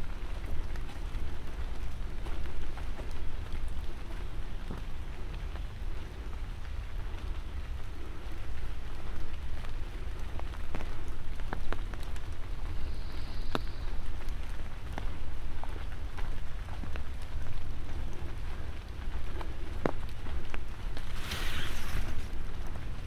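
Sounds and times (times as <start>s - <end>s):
water drips ticking: 0.0s - 21.0s
light rain pattering: 0.0s - 23.0s.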